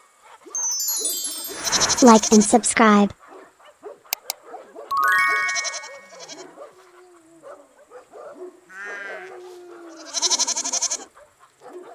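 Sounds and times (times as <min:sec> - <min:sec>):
rising chime: 0:00.6 - 0:02.8, 0:04.9 - 0:06.4
twinkling jingle: 0:00.6 - 0:02.8, 0:04.9 - 0:06.4
light background music: 0:04.9 - 0:06.5
goat bleating: 0:09.9 - 0:11.1.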